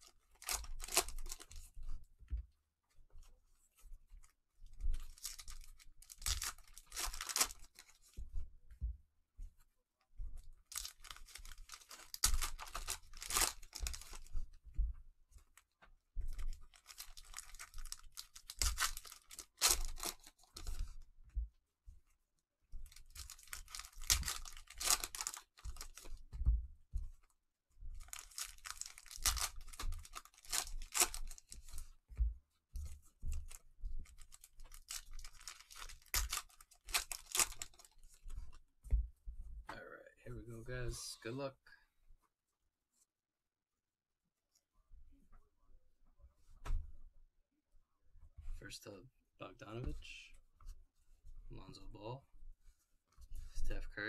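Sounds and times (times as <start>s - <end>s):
plastic wrappers tearing and crinkling: 0.0s - 1.6s, 5.0s - 8.0s, 10.7s - 14.3s, 16.7s - 20.8s, 22.8s - 26.2s, 28.0s - 31.8s, 34.0s - 38.0s.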